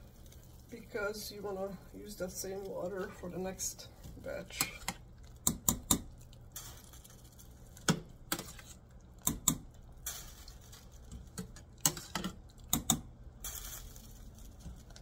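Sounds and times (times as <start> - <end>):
water dripping and splashing: 0.0 - 3.4.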